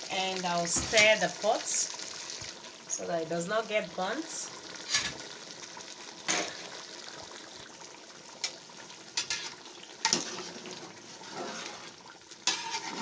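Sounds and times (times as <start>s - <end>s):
stew bubbling in metal pot: 0.0s - 13.0s.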